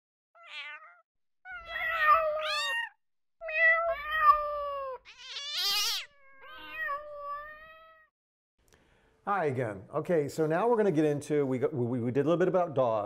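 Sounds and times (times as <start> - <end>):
cat meowing: 0.4 - 8.1.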